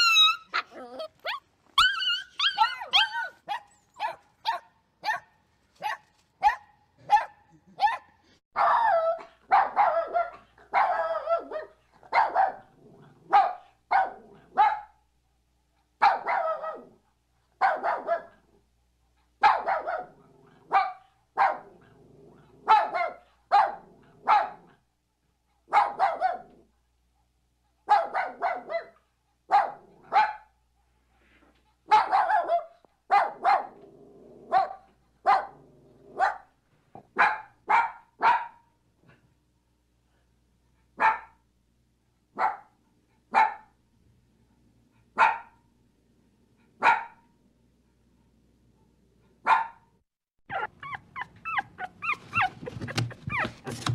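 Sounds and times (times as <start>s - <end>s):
dog barking: 0.0s - 12.7s, 13.3s - 15.0s, 16.0s - 17.0s, 17.6s - 18.5s, 19.4s - 21.8s, 22.6s - 24.8s, 25.7s - 26.6s, 27.8s - 30.6s, 31.9s - 33.8s, 34.5s - 38.7s, 41.0s - 41.4s, 42.4s - 43.8s, 45.2s - 45.6s, 46.8s - 47.3s, 49.4s - 49.9s.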